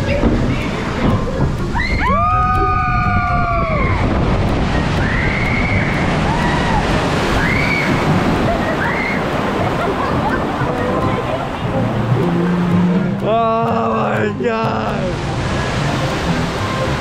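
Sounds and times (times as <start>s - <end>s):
wind on microphone: 0.0s - 13.2s
rushing water: 0.0s - 17.0s
riders screaming: 5.1s - 9.4s.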